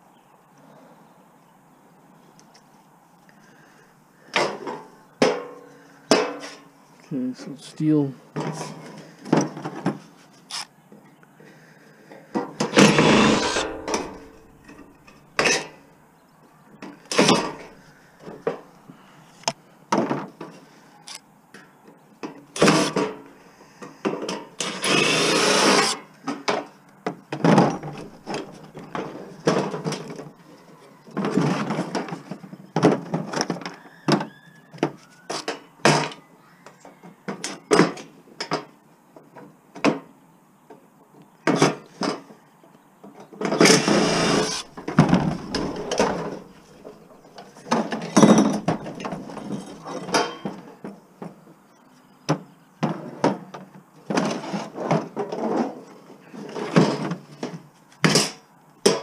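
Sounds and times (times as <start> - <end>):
metal parts clattering: 43.8 - 47.4, 48.1 - 50.5
metal knocks and clanks: 43.8 - 50.6.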